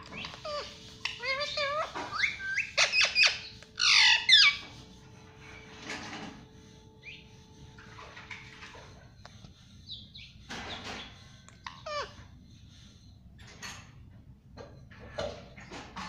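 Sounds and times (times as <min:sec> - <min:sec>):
parakeet squawking: 0:00.0 - 0:04.8, 0:09.9 - 0:12.2
faint bird chirps: 0:06.6 - 0:13.5.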